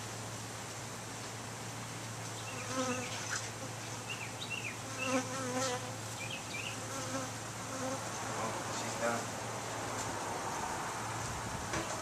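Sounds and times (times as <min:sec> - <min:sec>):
bees buzzing: 0:02.4 - 0:08.7.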